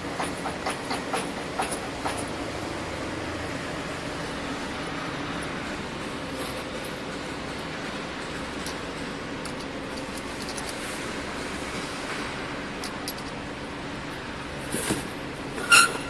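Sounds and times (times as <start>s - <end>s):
steady machine hum: 3.1s - 15.6s
metal bobbins clinking: 6.3s - 10.9s, 12.1s - 15.9s.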